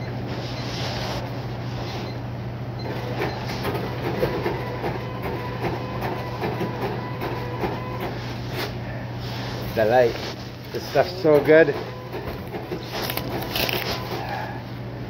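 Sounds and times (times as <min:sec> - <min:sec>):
printer buzzing and clicking: 0:02.8 - 0:08.2, 0:10.6 - 0:14.3
steady low hum: 0:06.9 - 0:15.0.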